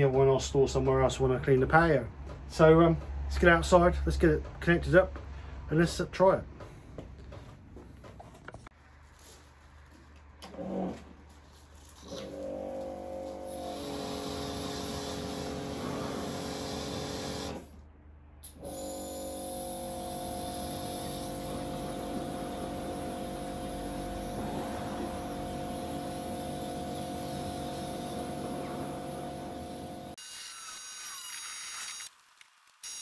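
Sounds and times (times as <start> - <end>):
pressure washer motor humming: 12.2 - 17.6, 19.7 - 30.2.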